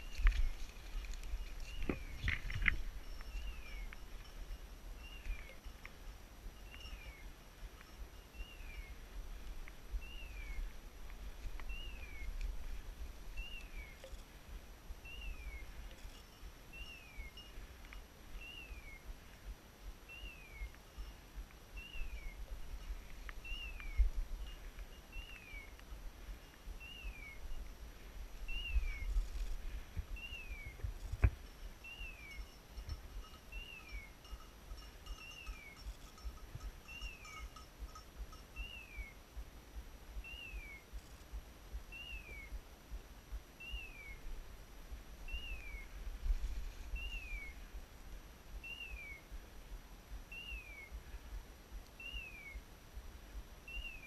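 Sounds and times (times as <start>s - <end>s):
footsteps through brush: 0.0s - 5.6s.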